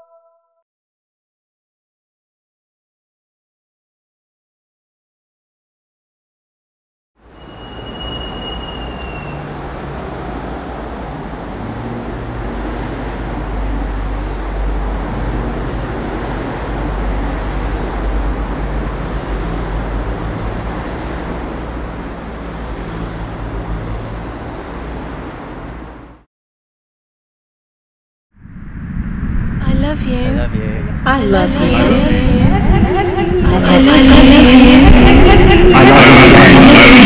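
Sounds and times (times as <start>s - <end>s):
road traffic rumble: 7.2s - 26.2s, 28.4s - 37.0s
high whine: 28.4s - 37.0s.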